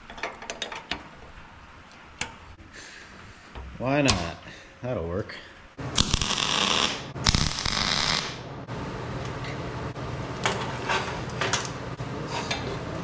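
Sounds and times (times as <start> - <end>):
crackling welding arc: 5.9 - 8.5.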